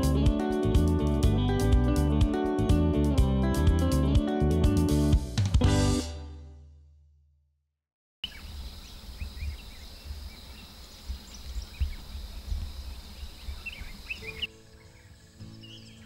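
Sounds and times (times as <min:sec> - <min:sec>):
soft music: 0:00.0 - 0:06.6, 0:14.1 - 0:16.0
bird chirps: 0:08.2 - 0:16.0.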